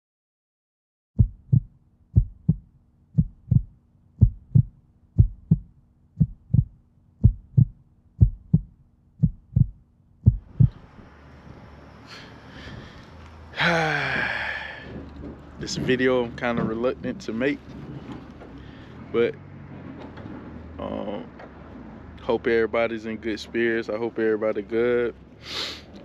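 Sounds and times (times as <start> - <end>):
heartbeat thumps: 1.2 - 10.9
faint outdoor background noise: 2.7 - 26.0.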